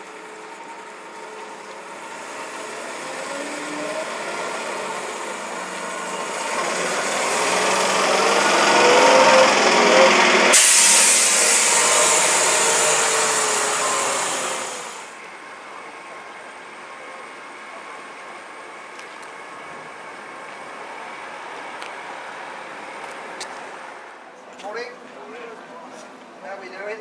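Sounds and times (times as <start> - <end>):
bus engine driving past: 0.0 - 25.9.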